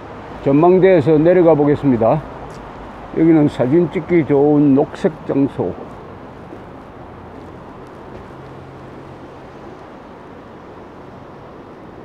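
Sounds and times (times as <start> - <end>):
light rain: 0.0 - 12.0.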